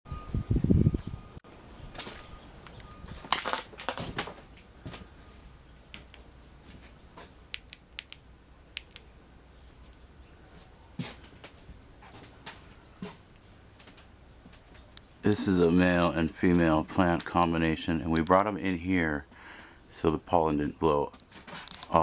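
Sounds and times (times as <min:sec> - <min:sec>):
sharp light clicks: 0:05.9 - 0:06.3, 0:07.5 - 0:08.2, 0:08.8 - 0:09.1.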